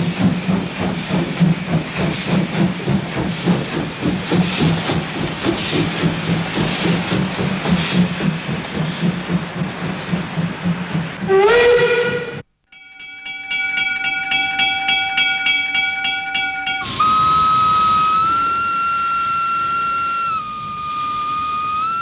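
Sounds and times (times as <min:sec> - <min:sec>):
steam locomotive chuffing: 0:00.0 - 0:12.4, 0:13.1 - 0:22.0
steam whistle: 0:11.2 - 0:12.4, 0:16.7 - 0:22.0.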